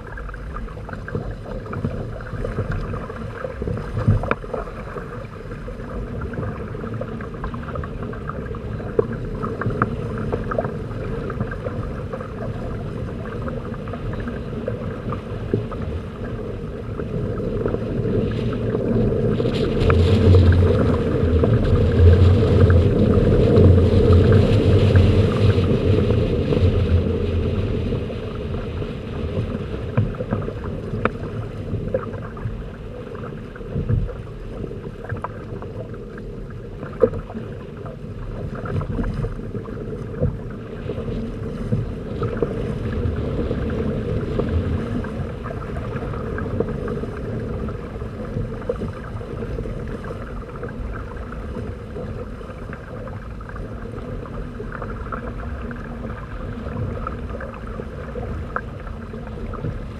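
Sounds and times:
water rushing along hulls: 0.0 - 59.9
wind buffeting microphone: 7.9 - 32.8.

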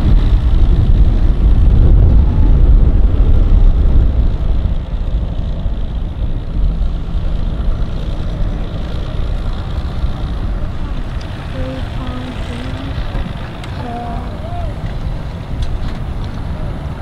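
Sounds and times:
propeller churning water: 0.0 - 17.0
outboard motor running: 4.3 - 15.8.

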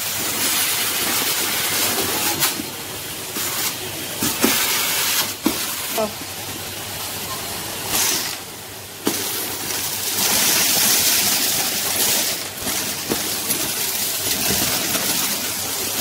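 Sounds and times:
seeds rattling up vacuum tube: 7.9 - 16.0.

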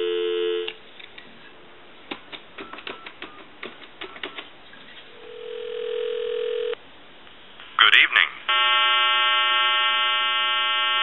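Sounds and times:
faint dialing tones: 0.0 - 0.8, 5.2 - 6.8
steady telephone line tone: 0.0 - 0.8, 5.2 - 6.8, 8.5 - 11.0
keypad button clicks: 2.6 - 4.5.

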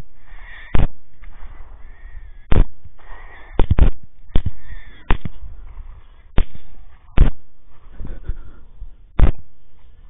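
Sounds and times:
rifle shots: 2.5 - 5.7, 6.3 - 7.7.

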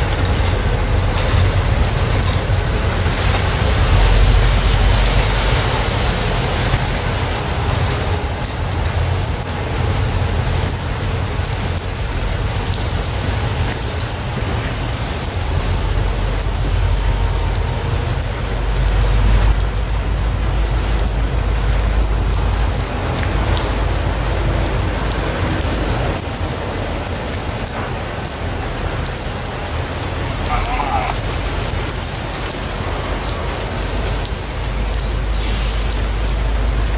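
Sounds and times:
steel wheels rumbling on rail: 0.0 - 36.9.

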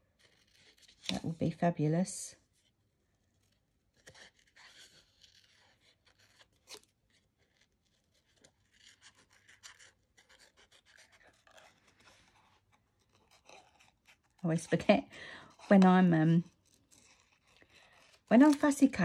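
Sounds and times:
scissors snipping cardstock: 8.1 - 19.0.

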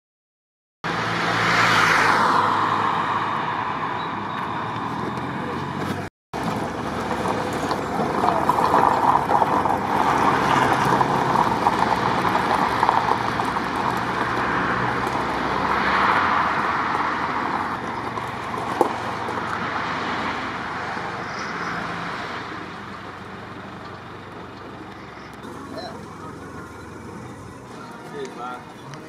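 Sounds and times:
car engine: 0.8 - 29.0
tyres on gravel: 4.2 - 29.0.

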